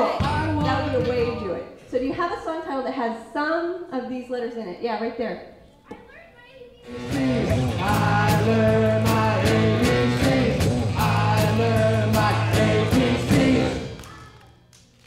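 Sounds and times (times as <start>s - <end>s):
rock band playing: 6.9s - 13.9s
person singing: 6.9s - 14.0s.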